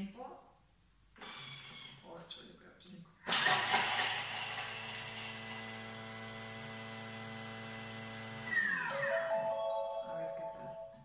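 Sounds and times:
blender chopping garlic: 3.3 - 9.0.

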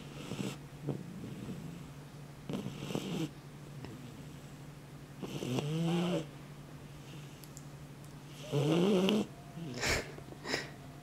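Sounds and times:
puppy snorting: 0.0 - 3.3, 5.2 - 6.3
puppy snoring: 0.0 - 4.6, 5.2 - 6.3, 8.2 - 10.7.

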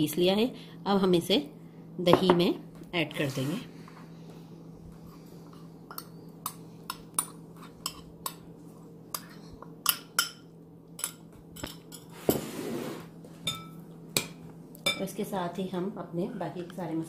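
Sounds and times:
metal spoon clinking on glass bowls: 5.9 - 8.4, 9.1 - 12.1, 13.4 - 13.8.

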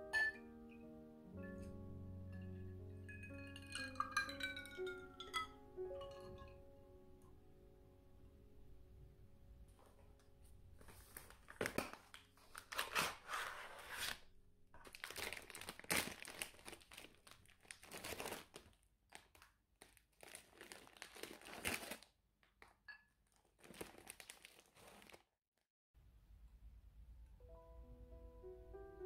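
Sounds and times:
foil snack bag crinkling: 10.8 - 14.2, 14.8 - 25.3.

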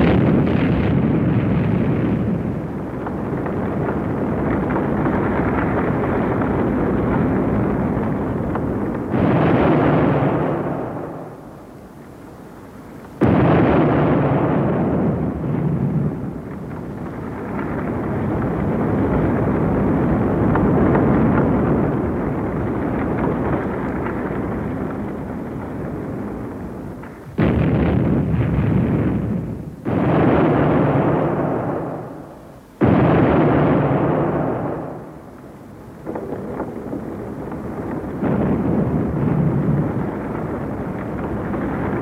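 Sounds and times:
rumble of building collapsing: 0.0 - 11.8, 13.0 - 42.0
explosive blasts: 0.0 - 12.0, 13.1 - 42.0.

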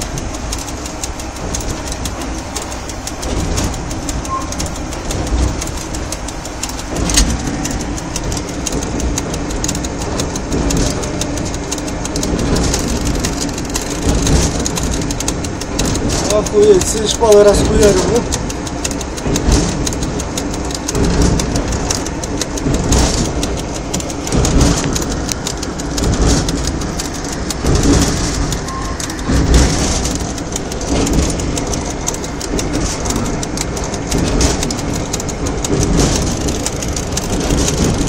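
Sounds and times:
knocks and clatter: 0.0 - 38.0
train rumbling and rattling: 0.0 - 38.0.

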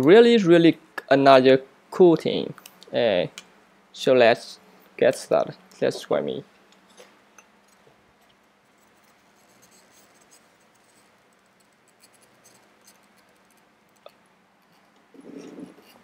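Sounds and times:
faint scratching: 8.6 - 13.7, 14.6 - 16.0.

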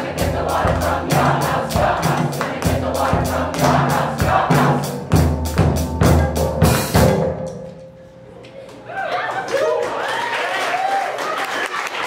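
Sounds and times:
choir singing: 0.0 - 5.4
drum kit and percussion: 0.0 - 8.1.

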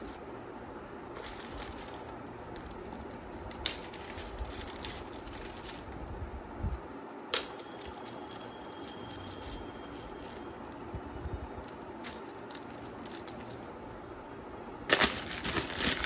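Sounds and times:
plastic bags crinkling: 1.2 - 6.1, 7.4 - 10.8, 11.6 - 13.7, 14.9 - 16.0.

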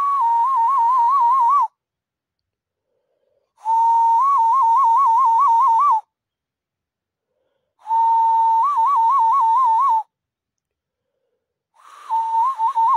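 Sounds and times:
cupped-hand whistle warbling: 7.9 - 10.1, 11.9 - 12.9.

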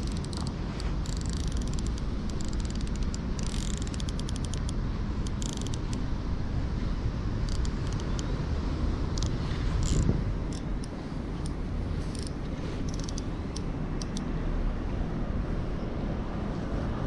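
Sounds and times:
fishing reel clicking: 0.0 - 6.0, 7.5 - 8.3, 9.2 - 14.2
steady low rumble: 0.0 - 17.0.

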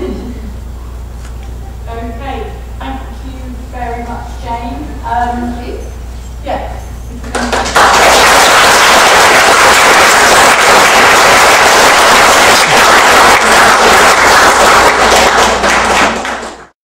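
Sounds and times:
audience applauding: 7.3 - 16.8.

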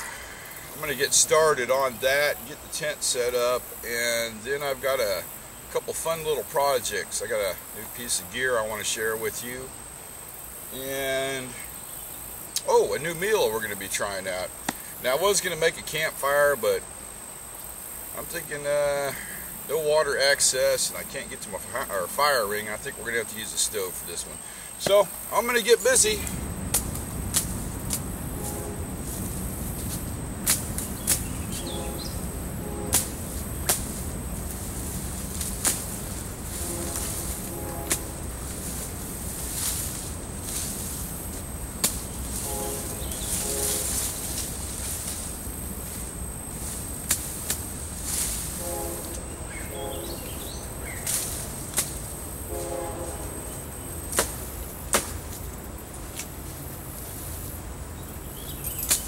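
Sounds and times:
blade chopping through brush: 26.7 - 29.2, 29.8 - 31.9, 32.8 - 45.3, 47.0 - 48.4, 51.0 - 52.0, 54.1 - 55.4.

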